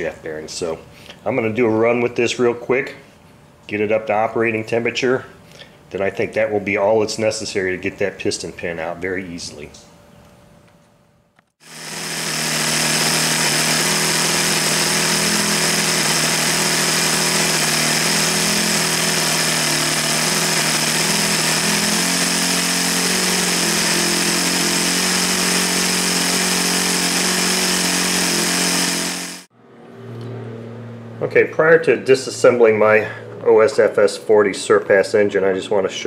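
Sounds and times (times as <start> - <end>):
model glow engine running: 11.6 - 29.5.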